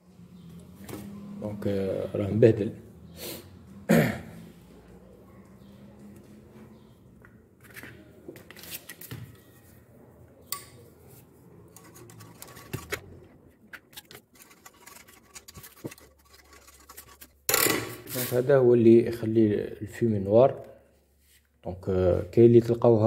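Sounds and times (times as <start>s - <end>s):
knife scraping inside metal pipe: 11.7s - 13.1s, 13.8s - 17.5s.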